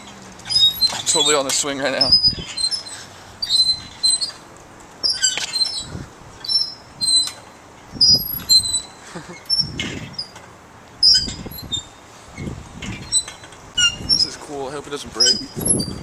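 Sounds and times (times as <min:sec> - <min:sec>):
wind rushing over microphone: 0:00.0 - 0:02.6, 0:05.8 - 0:07.2, 0:07.9 - 0:08.7, 0:09.5 - 0:10.3, 0:11.0 - 0:16.0
swing chains squeaking: 0:00.0 - 0:16.0.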